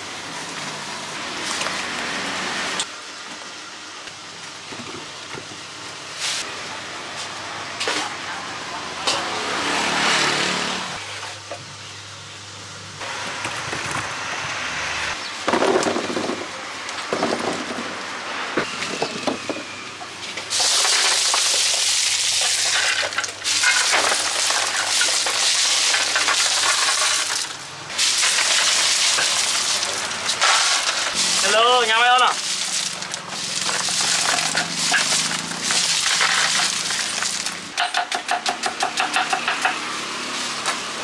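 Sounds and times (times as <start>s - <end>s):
ice cubes clattering: 20.5s - 37.7s.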